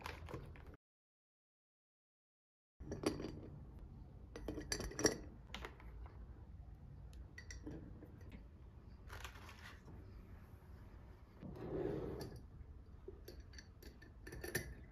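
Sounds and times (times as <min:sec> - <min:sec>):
kitchenware clinking: 0:13.2 - 0:14.9.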